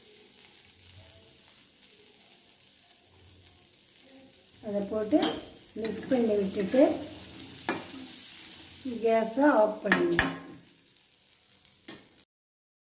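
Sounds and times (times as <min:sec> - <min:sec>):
pan sizzling: 0:00.0 - 0:12.3
spoon scraping a pan: 0:04.7 - 0:10.7
spoon knocking on pan: 0:05.0 - 0:08.1, 0:09.9 - 0:10.6.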